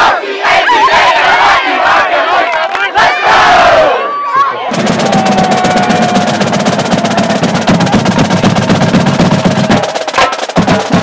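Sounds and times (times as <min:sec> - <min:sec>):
marching drumline cadence: 0:04.6 - 0:11.0.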